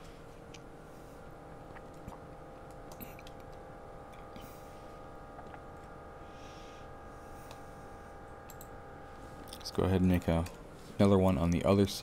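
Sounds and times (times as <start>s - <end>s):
low electrical hum: 0.0s - 12.0s
computer mouse clicks: 8.5s - 8.7s.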